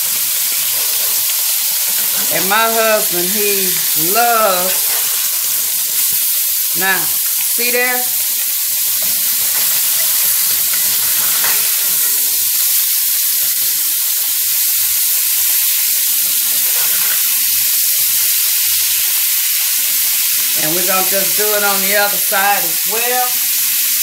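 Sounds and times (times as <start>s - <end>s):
fish sizzling in skillet: 0.0s - 24.0s.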